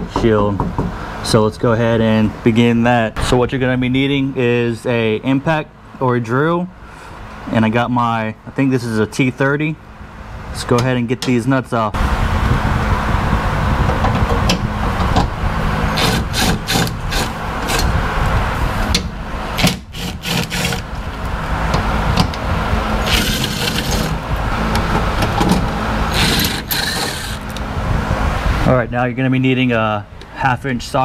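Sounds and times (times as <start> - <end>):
impact driver hammering: 15.9 - 18.0, 18.9 - 20.9, 23.0 - 27.6.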